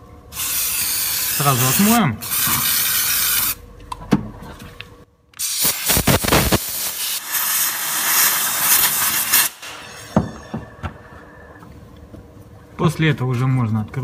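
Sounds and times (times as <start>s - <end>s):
aerosol can spraying: 5.4s - 9.6s
compressed air blow gun hissing: 5.4s - 10.2s.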